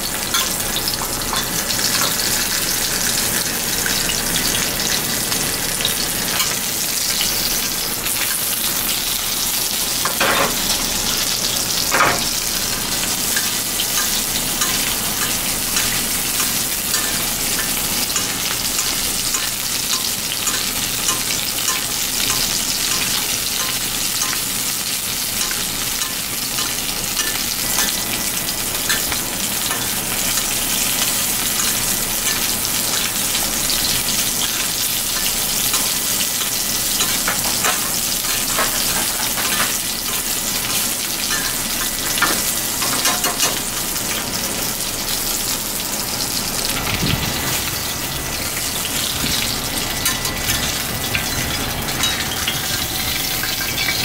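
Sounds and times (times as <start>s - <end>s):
oil sizzling in a frying pan: 0.0s - 54.0s
metal spoon scraping a pan: 13.3s - 24.5s.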